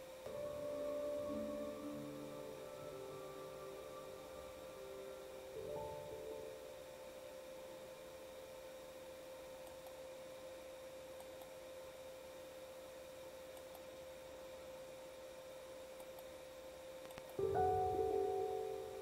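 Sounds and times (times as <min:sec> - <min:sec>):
faint clicks: 0:17.0 - 0:17.4.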